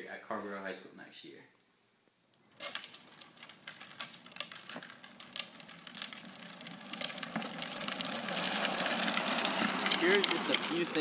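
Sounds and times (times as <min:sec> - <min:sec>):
plastic wheels rolling on concrete: 0:02.4 - 0:11.0.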